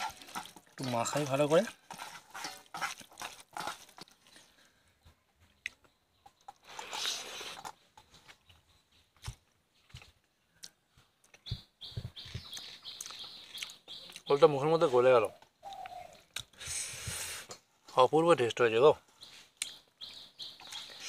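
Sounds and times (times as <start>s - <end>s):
chewing: 0.0s - 4.6s, 12.3s - 14.3s
bird chirping: 4.2s - 16.4s, 19.1s - 21.0s.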